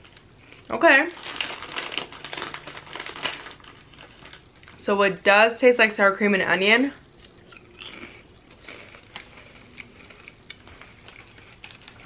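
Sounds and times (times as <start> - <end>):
potato chips crunching: 0.0 - 4.8, 7.2 - 12.0.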